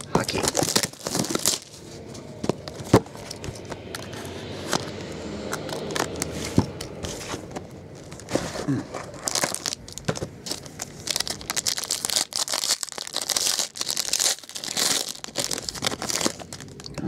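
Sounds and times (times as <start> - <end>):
foil wrapper crinkling and tearing: 0.0 - 1.9, 8.0 - 17.0.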